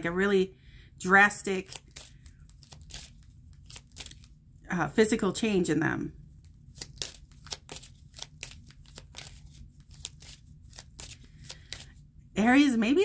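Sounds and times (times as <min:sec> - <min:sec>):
cards being shuffled: 0:01.6 - 0:04.4, 0:06.4 - 0:12.0.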